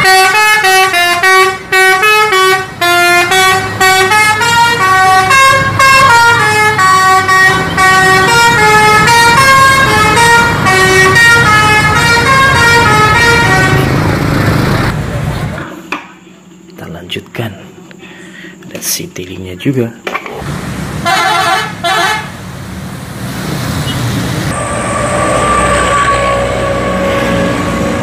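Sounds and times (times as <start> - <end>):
musical bus horn melody: 0.0 - 14.1, 21.0 - 22.4, 23.8 - 28.0
passing traffic: 0.0 - 15.7, 20.3 - 28.0.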